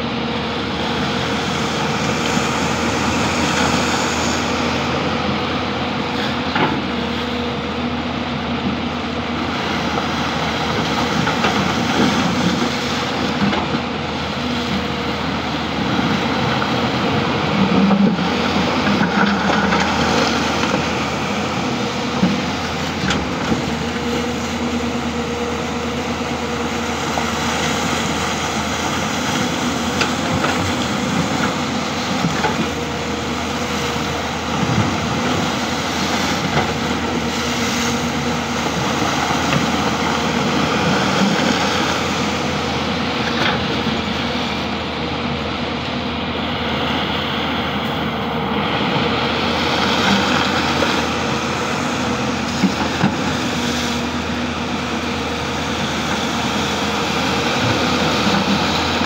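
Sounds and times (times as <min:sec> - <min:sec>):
excavator diesel engine running: 0:00.0 - 0:59.0
water churning and splashing: 0:00.1 - 0:59.0.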